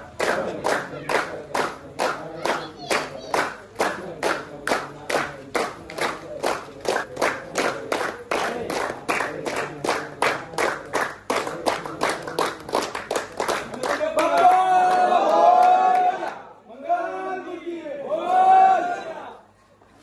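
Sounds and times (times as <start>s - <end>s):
crowd clapping in rhythm: 0.0s - 16.4s
group shout: 14.2s - 17.4s, 18.0s - 19.4s.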